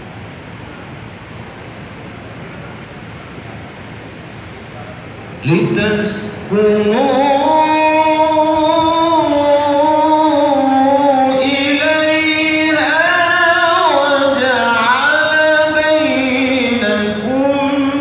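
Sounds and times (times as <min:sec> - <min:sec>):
person chanting melodic recitation: 0:05.4 - 0:18.0.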